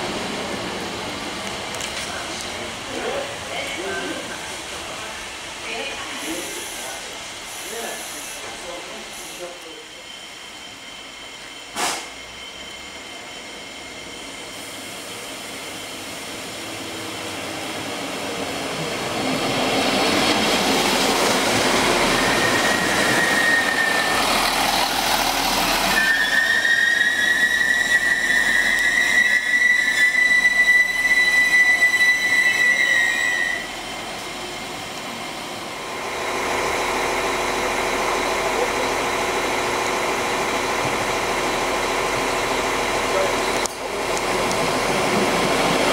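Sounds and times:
train wheels running: 0:00.0 - 0:45.9
diesel engine hum: 0:16.6 - 0:26.2, 0:34.3 - 0:45.9
high brake squeal: 0:21.9 - 0:34.0.

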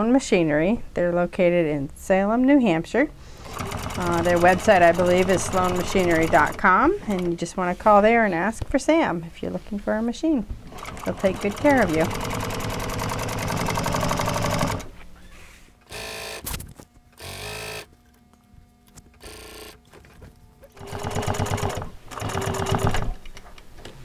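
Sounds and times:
industrial sewing machine stitching: 0:03.4 - 0:06.8, 0:10.7 - 0:14.9, 0:20.8 - 0:23.2.

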